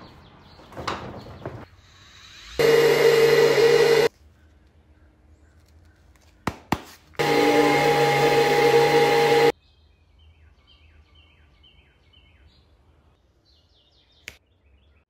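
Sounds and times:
electric sander humming: 0:02.6 - 0:04.1, 0:07.2 - 0:09.5.

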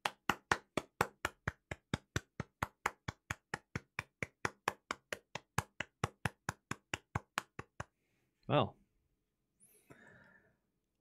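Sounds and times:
person clapping: 0:00.0 - 0:07.9.

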